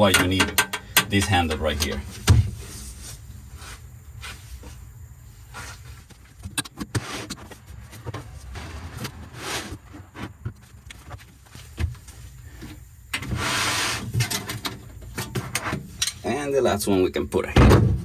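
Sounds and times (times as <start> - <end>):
wooden knocks and clunks: 0.0 - 2.6, 9.9 - 12.8, 17.6 - 18.0
wood scraping: 5.5 - 14.3.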